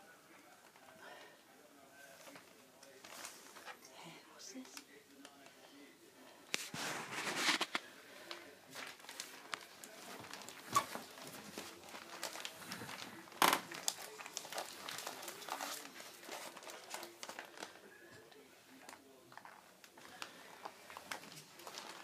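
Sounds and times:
newspaper crinkling and rustling: 2.0 - 3.8, 6.6 - 22.0.

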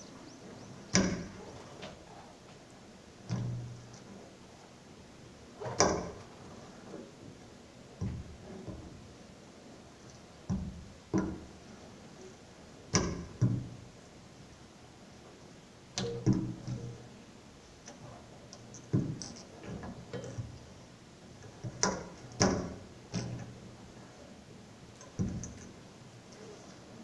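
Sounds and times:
ringing knocks and taps: 16.0 - 17.0.

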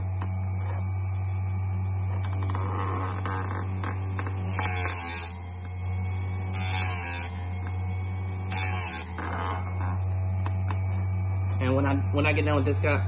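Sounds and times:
sharpener motor hum: 0.0 - 13.0
grinding disc on metal tooth: 2.0 - 12.4.

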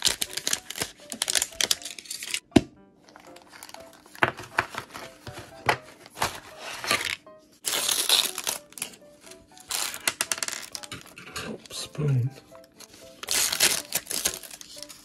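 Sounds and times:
light background music: 0.0 - 15.0
plastic bags crinkling: 3.1 - 9.0, 13.2 - 15.0.

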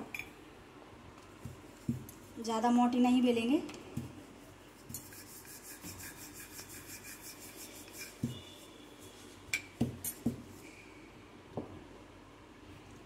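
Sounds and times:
rolling pin rubbing on dough: 1.4 - 2.7, 3.9 - 9.4.

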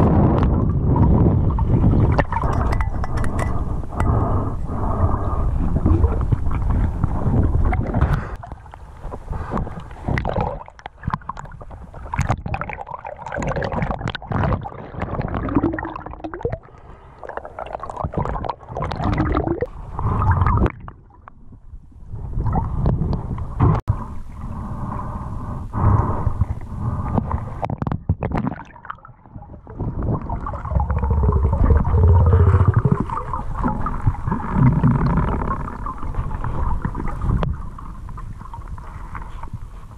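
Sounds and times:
underwater knocks and clicks: 0.0 - 4.3, 5.8 - 16.6, 17.7 - 19.7, 26.0 - 39.6
underwater river water gurgling: 0.0 - 39.9.

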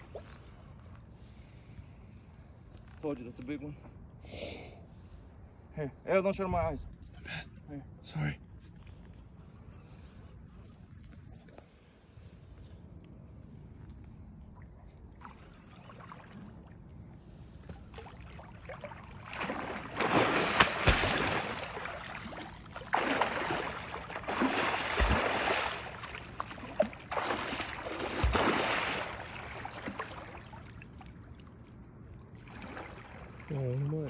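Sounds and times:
deep thumps of body slapping water: 17.6 - 31.1
fish splashing heavily: 19.3 - 30.6.

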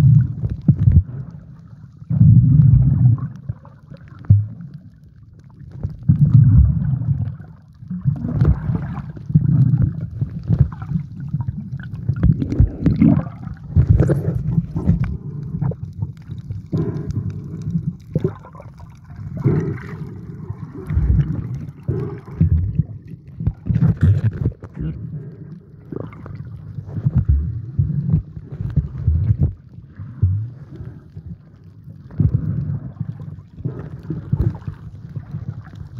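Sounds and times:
muffled water sloshing: 0.0 - 35.9.

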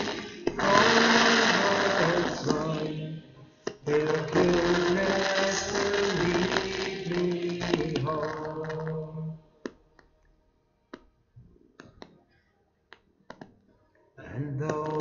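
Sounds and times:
man singing: 0.0 - 9.4, 14.2 - 15.0.

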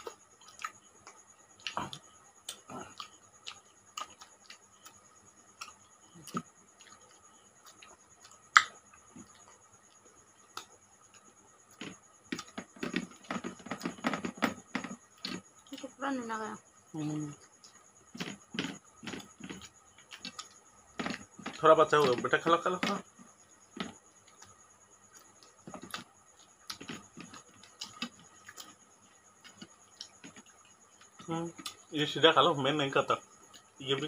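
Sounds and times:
mouth smacks and clicks: 5.6 - 9.6.

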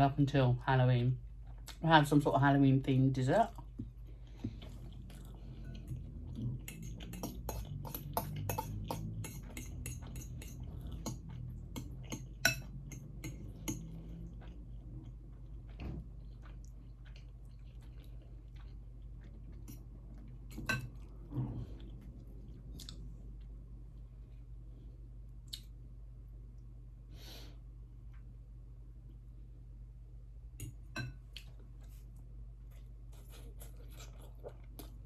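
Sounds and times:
soft chewing: 1.2 - 1.8, 3.2 - 26.8, 30.5 - 35.0
cutlery scraping a dish: 6.6 - 13.9.

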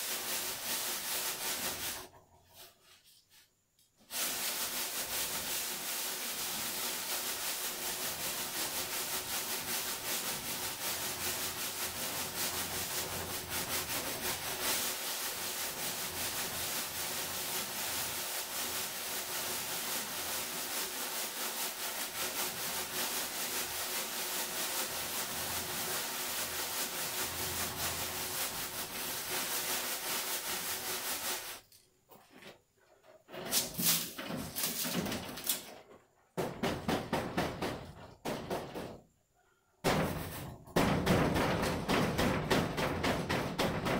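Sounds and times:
sand hissing through wire sieve: 0.0 - 31.7, 33.4 - 35.6
sieve knocking: 39.8 - 43.9.

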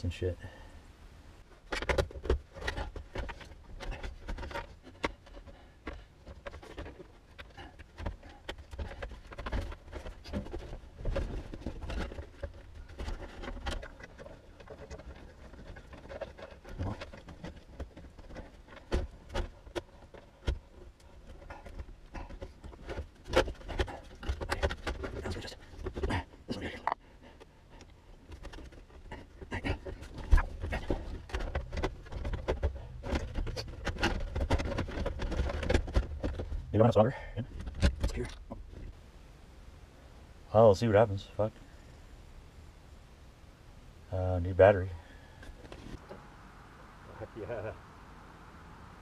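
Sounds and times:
clicks taps and rustling: 1.6 - 39.0.

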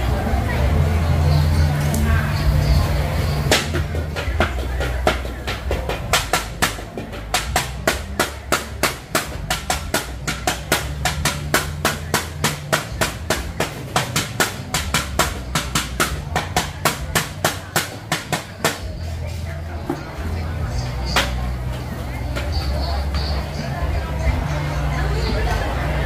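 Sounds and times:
rapid sharp knocking: 3.5 - 18.9.

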